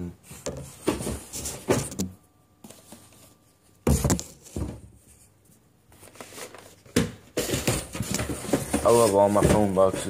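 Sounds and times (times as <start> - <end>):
cardboard rustling: 5.9 - 10.0.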